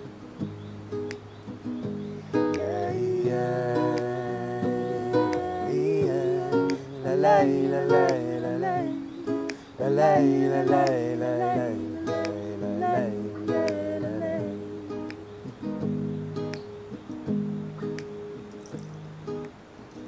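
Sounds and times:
acoustic guitar strumming: 0.0 - 19.7
man and woman singing: 2.5 - 15.5.

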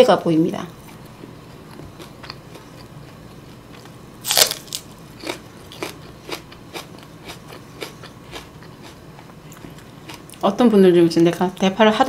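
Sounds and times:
crunchy chewing: 0.9 - 10.4
crisp bite into green onion: 4.2 - 5.4.

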